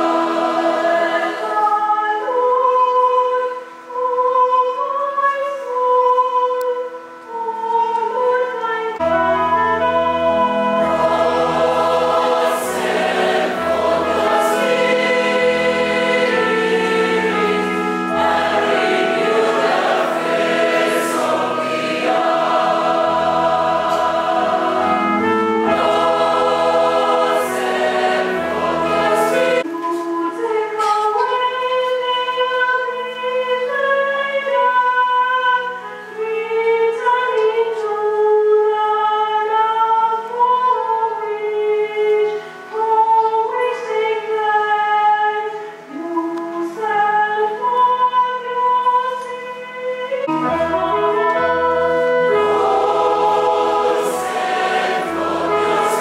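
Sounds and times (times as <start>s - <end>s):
choir singing a hymn: 0.0s - 56.0s
single melodic voice: 50.2s - 56.0s.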